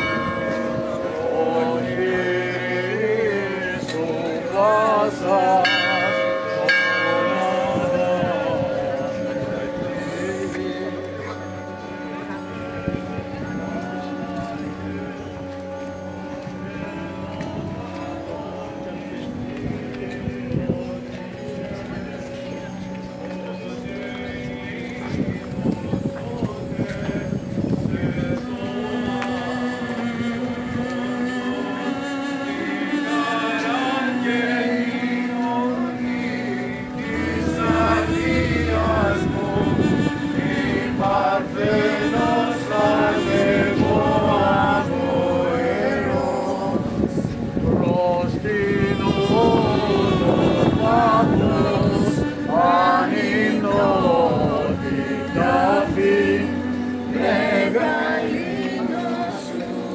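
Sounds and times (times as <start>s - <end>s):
crowd singing a hymn: 0.0s - 59.9s
group chanting over drone note: 27.1s - 59.9s.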